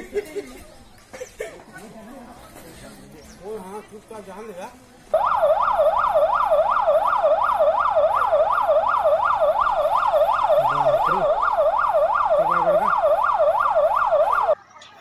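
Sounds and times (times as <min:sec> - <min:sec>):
electronic siren yelping: 0:05.2 - 0:14.6.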